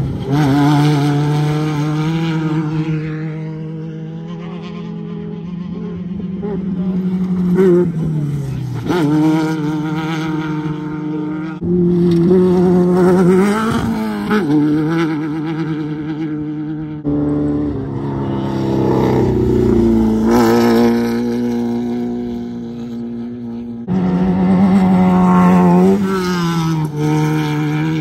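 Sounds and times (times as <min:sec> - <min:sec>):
race car engines passing: 0:00.0 - 0:28.0.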